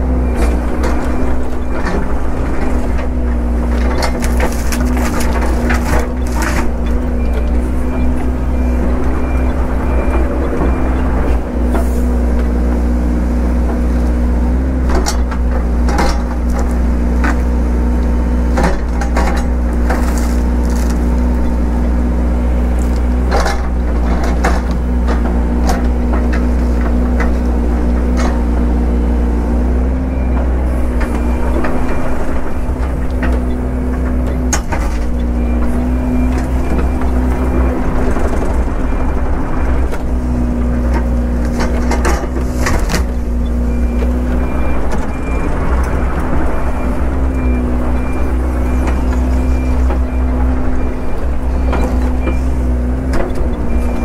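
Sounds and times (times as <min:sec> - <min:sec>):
excavator diesel engine running: 0:00.0 - 0:54.0
wood cracking and snapping: 0:03.8 - 0:06.7, 0:18.7 - 0:21.4.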